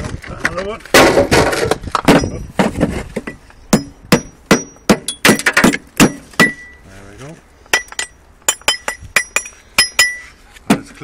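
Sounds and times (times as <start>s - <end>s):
hammer striking brick: 2.1s - 6.7s, 7.7s - 10.9s.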